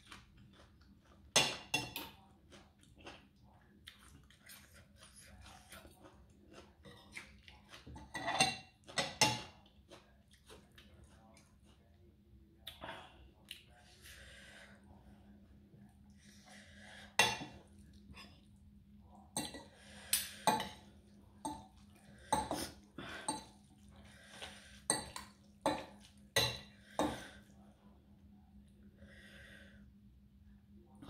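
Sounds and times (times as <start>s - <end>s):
cutlery clinking on ceramic plate: 1.4s - 2.2s, 7.9s - 9.5s.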